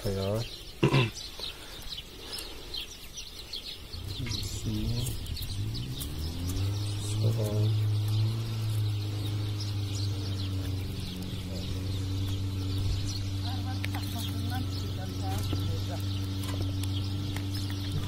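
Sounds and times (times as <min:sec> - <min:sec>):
small birds chirping: 0:00.0 - 0:18.0
low pitched drone: 0:03.8 - 0:18.0.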